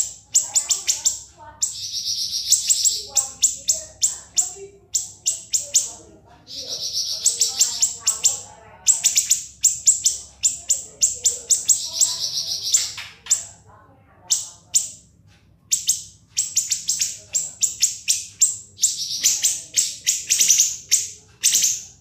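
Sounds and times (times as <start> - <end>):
bird buzzing trills: 0.0 - 13.4
songbird singing sharp notes: 0.0 - 13.5, 15.7 - 21.9.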